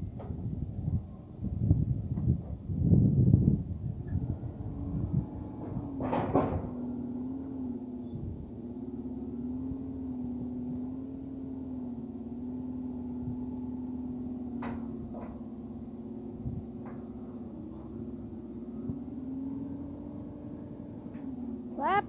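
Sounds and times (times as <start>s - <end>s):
truck engine humming: 6.7s - 22.0s.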